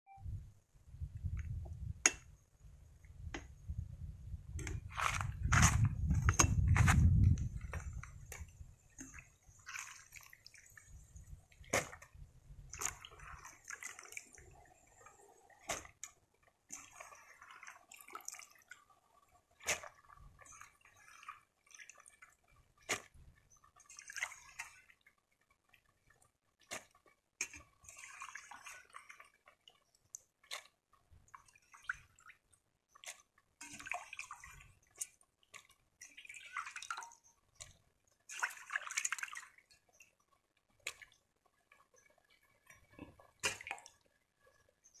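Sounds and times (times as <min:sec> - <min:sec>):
broth boiling in a pot: 0:00.2 - 0:45.0
sharp pops and clicks: 0:01.2 - 0:02.4, 0:03.2 - 0:03.6.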